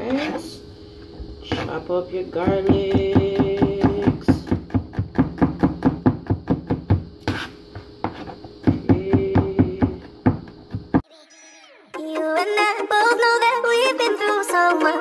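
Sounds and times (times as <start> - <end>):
knife chopping on cutting board: 2.4 - 11.0.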